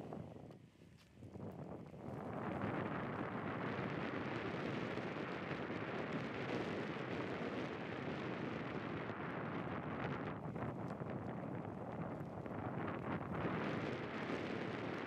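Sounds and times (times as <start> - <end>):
wind on microphone: 0.0 - 15.0.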